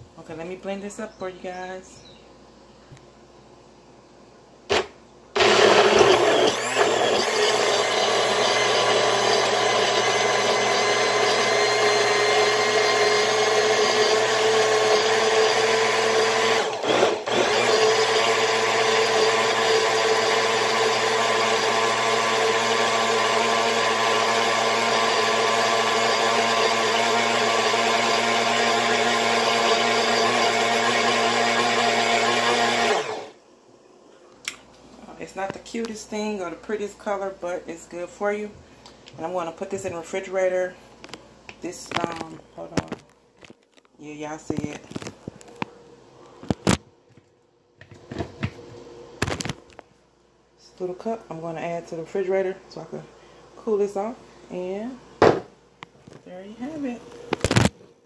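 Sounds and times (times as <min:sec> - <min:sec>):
blender motor whirring: 0:04.7 - 0:33.4.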